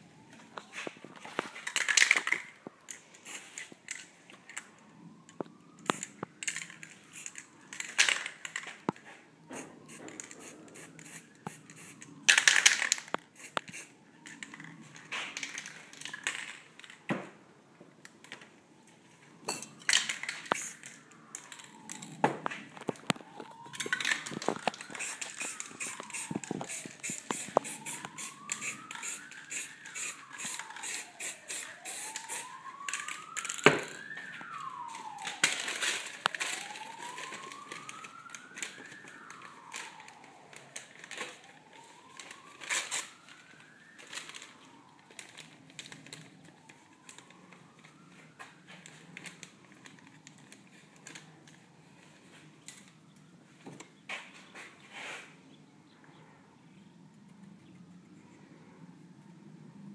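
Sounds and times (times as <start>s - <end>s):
siren wailing: 0.0s - 54.7s
paper crackling and rustling: 0.2s - 4.0s, 20.0s - 30.9s, 32.3s - 52.4s
spray-paint can hissing: 3.2s - 3.6s, 9.9s - 12.0s, 13.4s - 13.9s, 20.6s - 20.8s, 25.0s - 32.4s.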